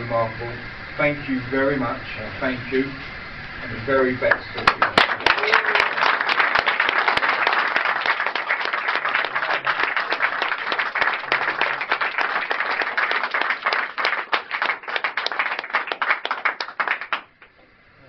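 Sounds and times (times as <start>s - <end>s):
small crowd clapping: 4.3s - 17.6s.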